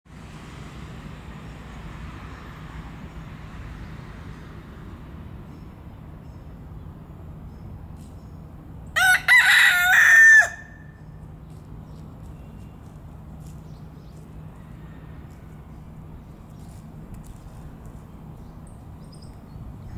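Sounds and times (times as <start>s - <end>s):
rooster crowing: 9.0s - 11.0s, 14.6s - 15.3s.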